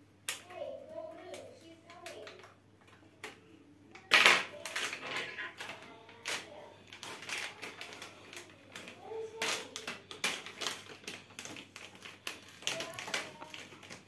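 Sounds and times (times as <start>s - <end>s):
sachets crinkling and tearing: 4.6s - 14.0s.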